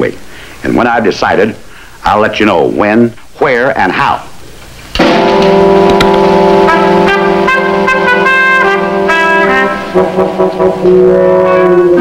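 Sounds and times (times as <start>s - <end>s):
brass short notes: 5.0s - 12.0s
low orchestral chords: 5.0s - 12.0s.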